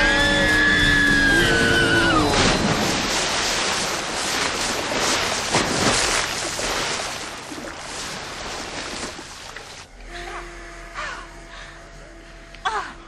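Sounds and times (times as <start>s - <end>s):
water splashing and spraying: 0.4s - 9.9s.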